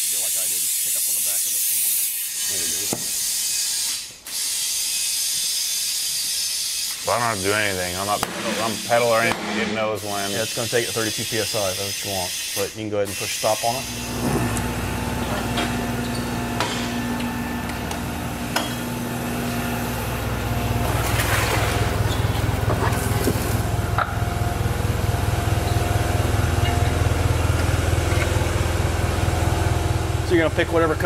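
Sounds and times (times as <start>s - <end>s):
motor running with low throb: 13.7s - 31.0s.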